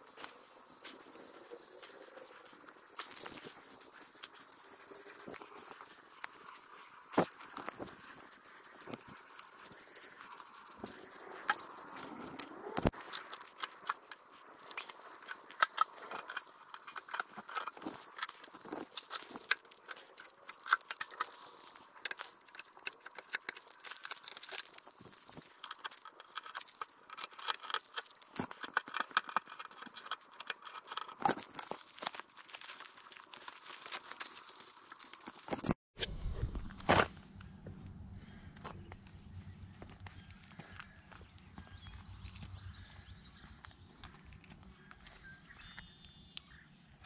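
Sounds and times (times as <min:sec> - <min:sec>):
masking tape peeled and crumpled: 0:00.0 - 0:35.8.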